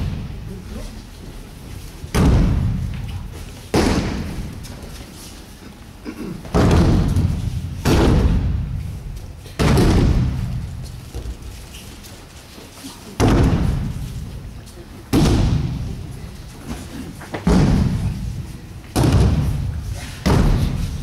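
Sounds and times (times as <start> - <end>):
bodies thudding on mats: 2.0 - 5.0, 6.4 - 11.7, 13.2 - 14.2, 16.7 - 18.3.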